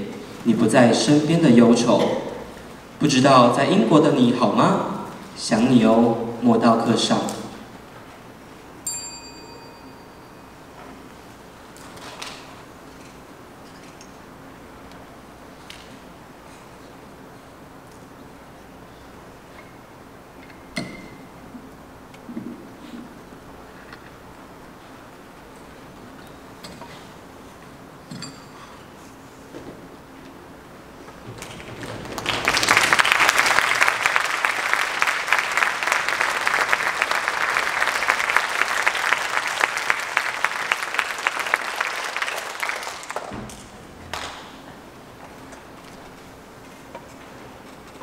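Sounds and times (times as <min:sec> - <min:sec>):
audience applauding: 0:31.4 - 0:43.3, 0:44.1 - 0:44.7.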